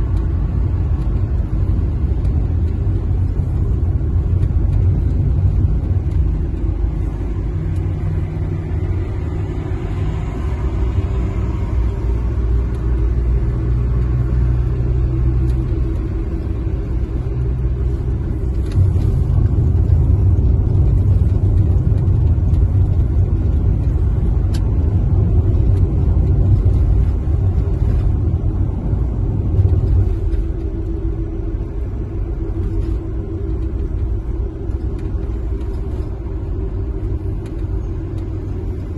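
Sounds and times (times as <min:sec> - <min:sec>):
car driving rumble from inside: 0:00.0 - 0:38.9.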